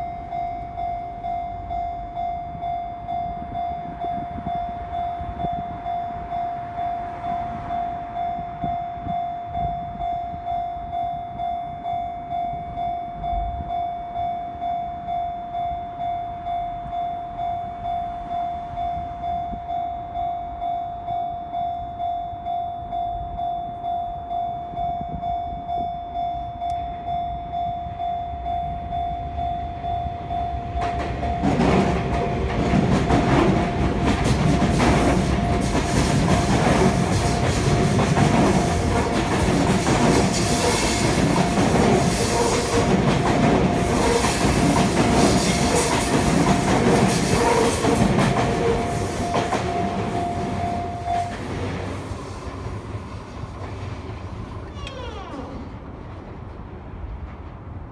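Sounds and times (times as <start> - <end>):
train wheels clattering: 30.4 - 52.9
level crossing bell dinging: 48.6 - 51.5.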